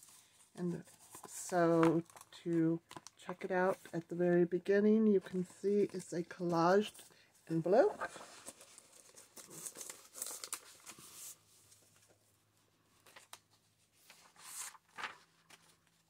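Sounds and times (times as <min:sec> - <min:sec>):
paper pages rustling and turning: 0:00.0 - 0:04.1, 0:07.7 - 0:12.3, 0:12.9 - 0:16.0.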